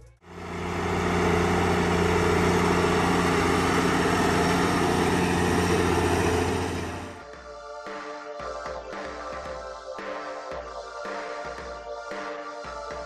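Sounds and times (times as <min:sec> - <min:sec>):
tractor diesel engine running: 0:00.2 - 0:07.2.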